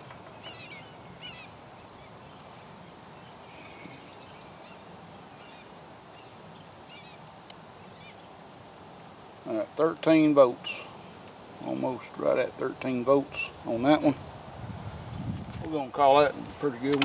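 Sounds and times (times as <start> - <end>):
bird chirps: 0.0 - 2.5, 3.2 - 7.2.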